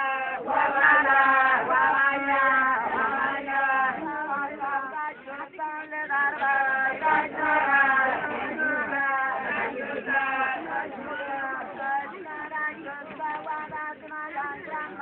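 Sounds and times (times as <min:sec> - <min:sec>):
group chanting a song: 0:00.0 - 0:15.0.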